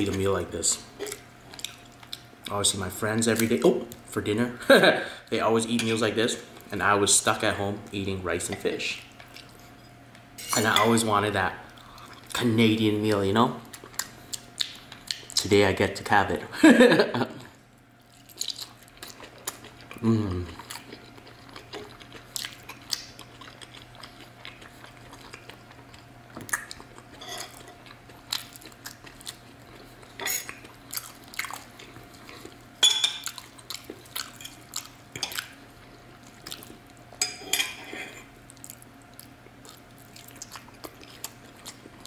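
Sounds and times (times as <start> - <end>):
close-up chewing: 18.0 - 37.1, 38.5 - 42.0.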